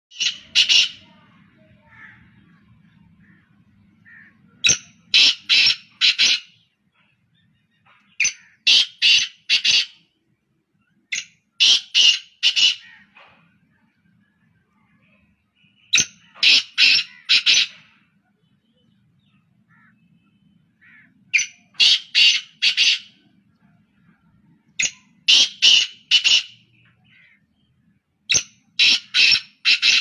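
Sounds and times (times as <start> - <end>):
francolins calling harshly: 0.1 - 6.8, 7.8 - 10.1, 11.1 - 13.1, 15.7 - 18.0, 19.6 - 23.4, 24.0 - 27.7, 28.3 - 30.0.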